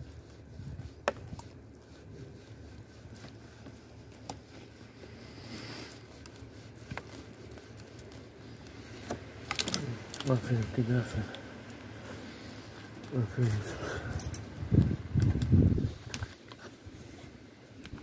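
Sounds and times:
hand stroking fur: 0.0s - 9.4s.

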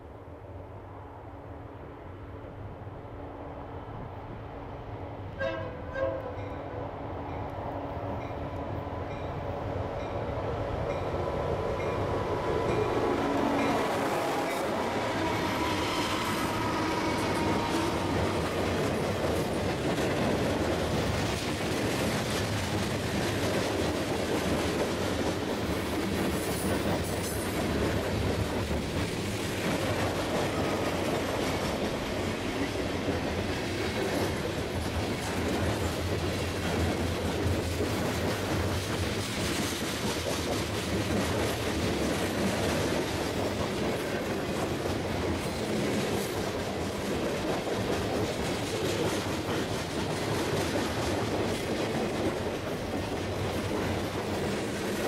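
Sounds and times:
freight train rumbling on rails: 0.0s - 55.0s.

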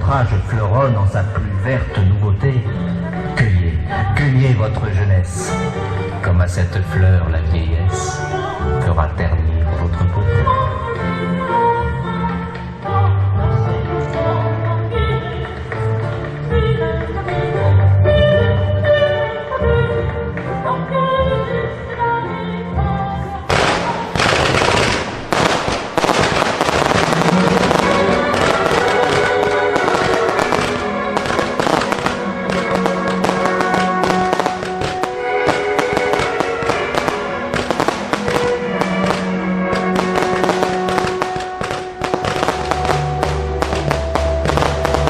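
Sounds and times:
music: 0.0s - 45.0s
fireworks bangs and crackles: 23.5s - 45.0s.

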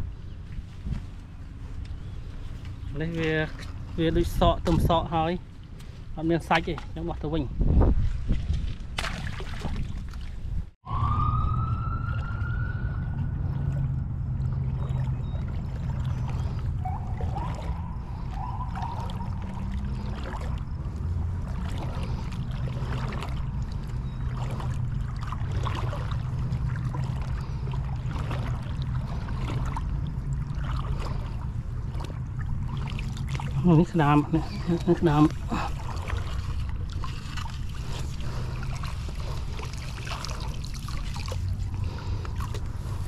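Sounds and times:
steady low rumble: 0.0s - 43.0s
wading through shallow water: 0.0s - 43.0s
long rising wail: 10.8s - 14.0s.

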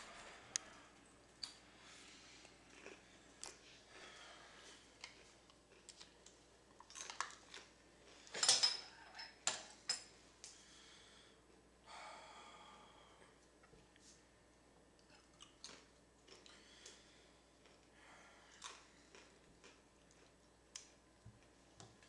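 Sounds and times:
metal spoon and dishes clinking: 8.4s - 10.1s.

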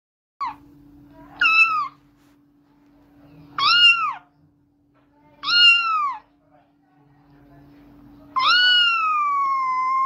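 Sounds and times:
faint steady hum: 0.4s - 10.0s
cat meowing: 1.4s - 2.0s, 3.6s - 4.3s, 5.4s - 6.3s, 8.4s - 10.0s.

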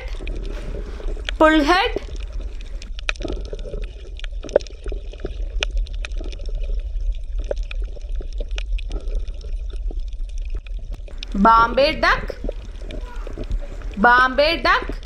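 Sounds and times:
water bubbling and gurgling: 0.0s - 15.0s
steady low hum: 10.9s - 15.0s.

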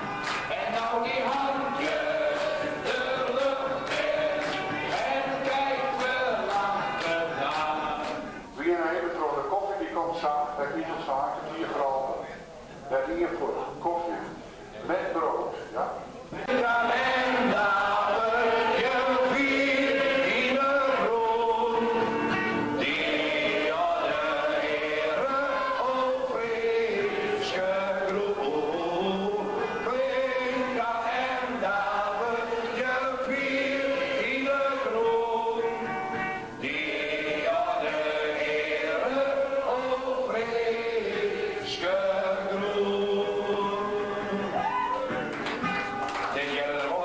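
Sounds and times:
group singing together: 0.0s - 8.5s, 16.4s - 44.8s.

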